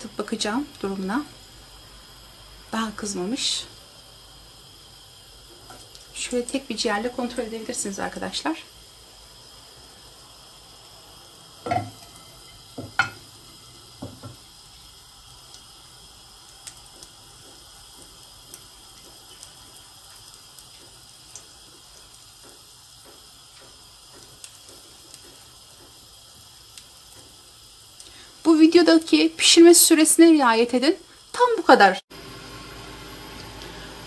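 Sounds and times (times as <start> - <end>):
liver sizzling in frying pan: 0.0 - 34.0.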